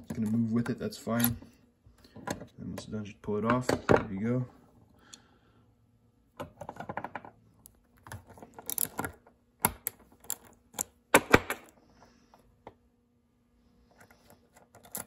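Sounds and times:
small metal parts clicking: 7.6 - 11.0, 14.5 - 15.0.

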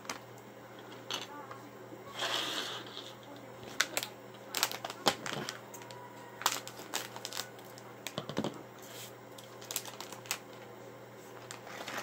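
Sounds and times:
foil packet rustling: 2.8 - 10.7, 11.3 - 12.0.

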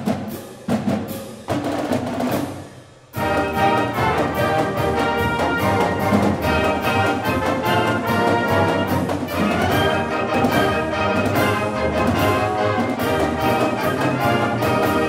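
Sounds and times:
steady drum beat: 0.0 - 15.0
brass playing a melody: 3.2 - 15.0.

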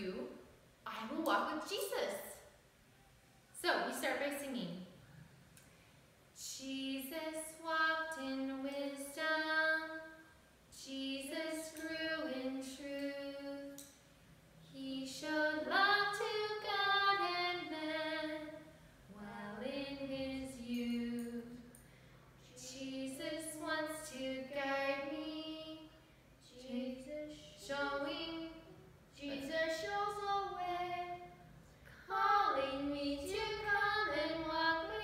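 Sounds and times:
woman and child singing: 26.5 - 31.3.

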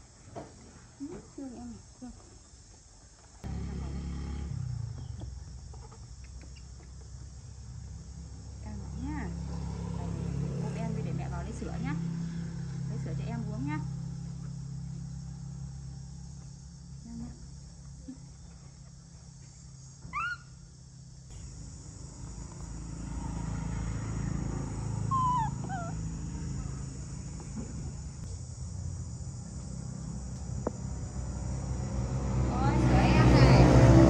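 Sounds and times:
steady low hum: 0.0 - 34.0
high animal calls: 20.0 - 20.7, 25.0 - 26.7.

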